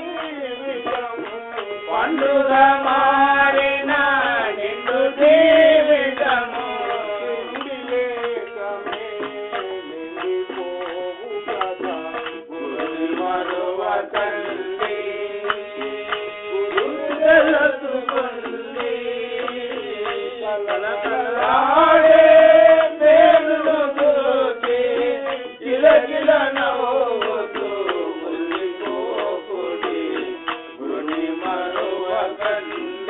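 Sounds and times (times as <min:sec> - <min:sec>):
person singing devotional song: 0:00.0 - 0:33.0
tabla and percussion: 0:00.0 - 0:33.0.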